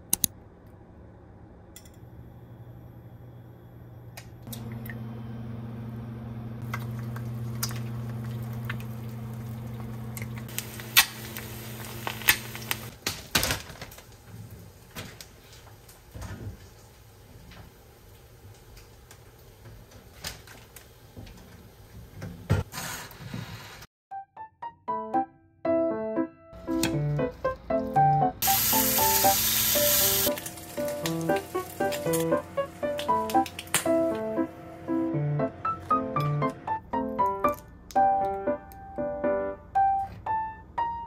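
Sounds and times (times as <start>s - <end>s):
induction hob humming: 1.6s - 12.9s, 28.4s - 36.9s
eggs frying with pops and crackles: 6.6s - 22.3s, 28.5s - 34.2s.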